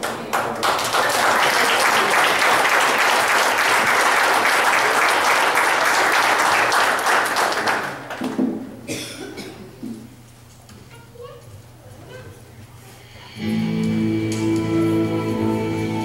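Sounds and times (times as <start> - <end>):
congregation clapping: 0.0 - 8.5.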